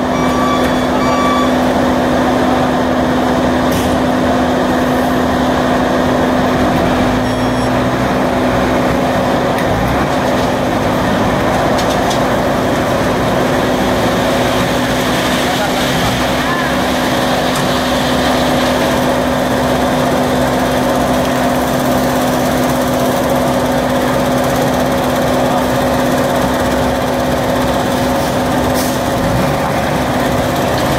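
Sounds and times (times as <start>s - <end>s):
truck reversing beeper: 0.0s - 2.5s, 6.9s - 8.4s
diesel engines running: 0.0s - 30.9s.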